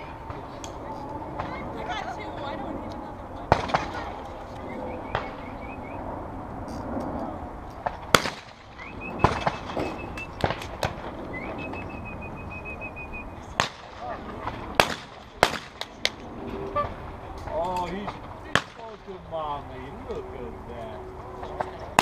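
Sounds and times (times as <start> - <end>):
shotgun shots: 7.9 - 11.1, 13.5 - 14.1, 14.7 - 16.0, 18.5 - 19.0.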